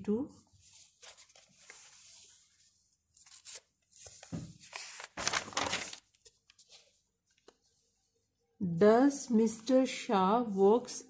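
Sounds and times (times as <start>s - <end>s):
paper pages turning and rustling: 0.5s - 7.9s.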